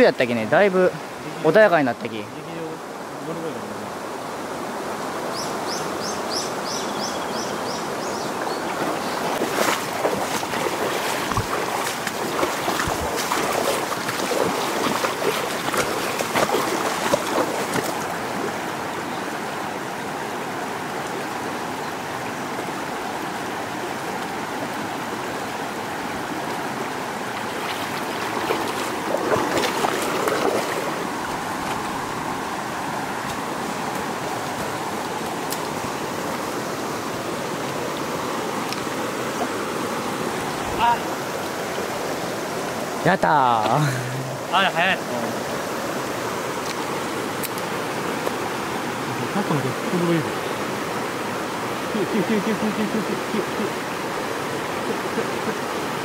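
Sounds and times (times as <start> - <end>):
stream rushing over stones: 0.0 - 56.0
water splashing: 8.2 - 19.4, 25.6 - 56.0.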